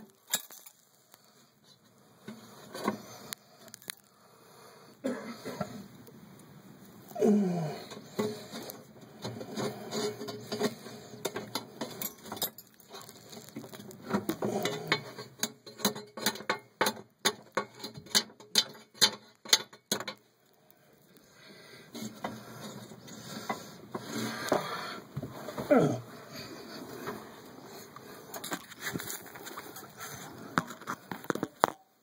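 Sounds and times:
metal tools clicking and rattling: 0.2s - 0.8s, 7.9s - 20.2s.

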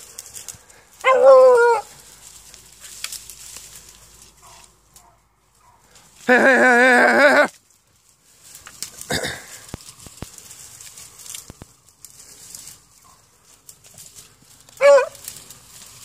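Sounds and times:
twigs snapping: 0.0s - 6.3s, 7.5s - 16.0s
brush rustling: 0.0s - 16.0s
dog baying: 1.0s - 2.0s, 14.8s - 15.3s.

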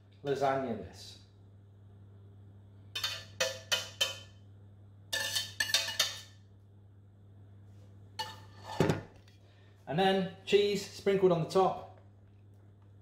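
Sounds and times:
whisk knocking in metal saucepan: 3.0s - 4.3s.

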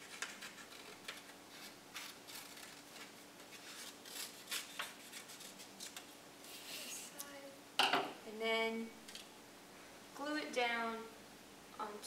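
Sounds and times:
scissors cutting paper: 0.0s - 6.1s.

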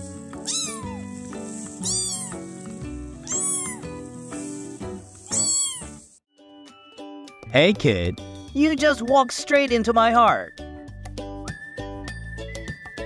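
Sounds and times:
background music: 0.0s - 13.0s
kitten meowing: 0.4s - 1.1s, 1.8s - 2.4s, 3.2s - 3.9s, 5.3s - 6.0s.

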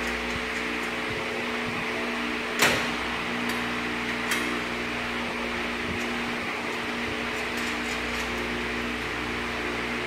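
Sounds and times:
steady hum: 0.0s - 10.0s.

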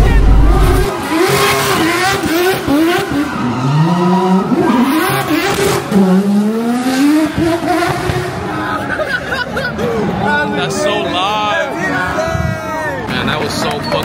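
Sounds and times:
racing car engine revving: 0.0s - 8.6s
tyres skidding and squealing: 0.0s - 9.0s.

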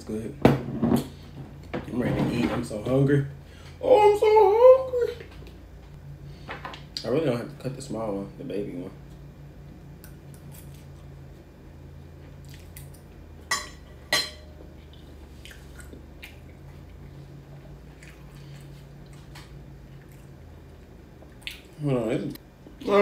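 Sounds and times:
low steady hum: 0.0s - 23.0s
chewing: 14.6s - 21.7s.

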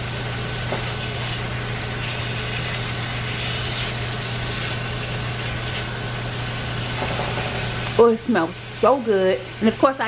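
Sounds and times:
steaks sizzling in a skillet: 0.6s - 8.0s.

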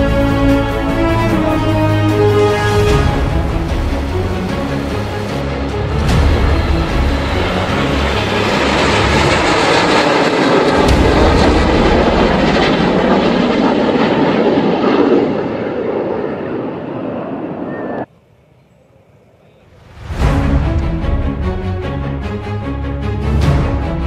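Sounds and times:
jet engines roaring overhead: 0.0s - 18.1s.

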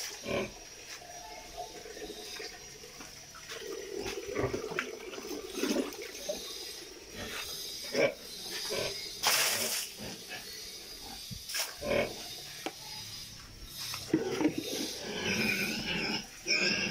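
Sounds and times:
pigs grunting: 0.0s - 0.7s, 3.5s - 12.4s, 14.0s - 16.9s.

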